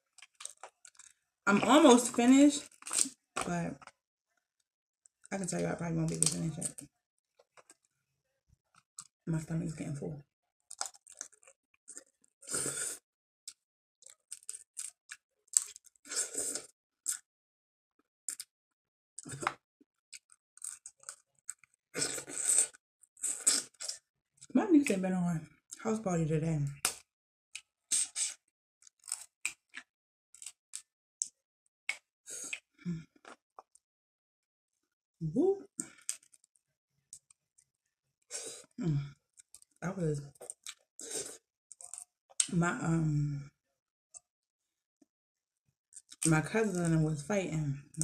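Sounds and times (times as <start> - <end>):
wet chewing and smacking: 0.0 - 1.1, 2.6 - 3.2, 10.7 - 12.2, 13.5 - 15.9, 40.3 - 40.8, 41.7 - 42.5
shellfish shells cracking: 0.1 - 1.1, 2.6 - 3.2, 10.7 - 11.6.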